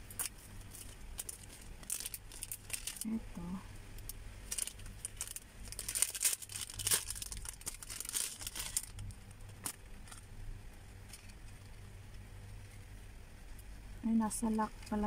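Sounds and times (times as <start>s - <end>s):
plastic packet crinkling: 0.1s - 3.2s, 4.0s - 10.2s.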